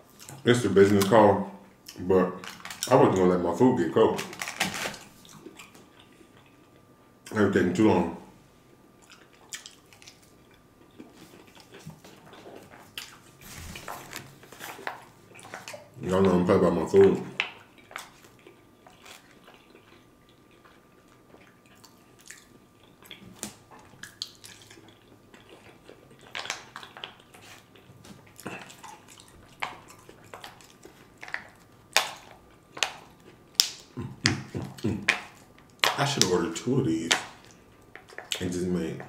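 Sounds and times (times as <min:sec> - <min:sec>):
person chewing pasta: 0:04.2 - 0:07.0, 0:08.7 - 0:36.0, 0:37.1 - 0:38.6
wet mouth clicks and smacks: 0:09.0 - 0:10.3.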